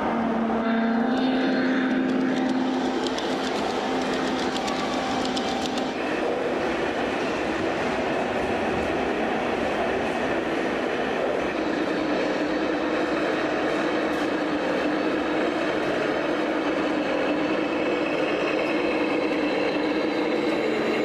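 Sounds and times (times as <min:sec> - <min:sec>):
hall noise: 0:00.0 - 0:21.0
model train hum: 0:00.0 - 0:21.0
wheels clicking over track: 0:01.8 - 0:07.4.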